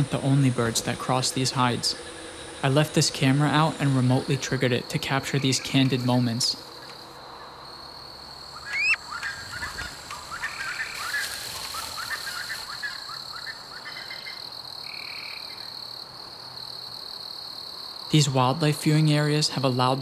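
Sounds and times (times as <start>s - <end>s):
high-pitched insect drone: 0.0s - 16.0s
short rising chirping calls: 8.5s - 14.4s.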